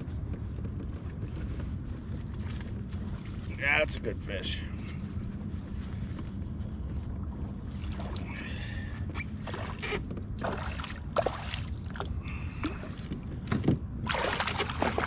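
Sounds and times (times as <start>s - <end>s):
steady low rumble: 0.0s - 15.0s
water splashing: 7.6s - 13.1s, 14.0s - 15.0s.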